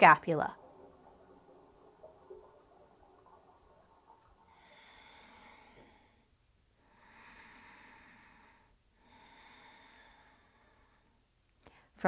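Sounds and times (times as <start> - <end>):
faint slow breathing: 0.6 - 12.0.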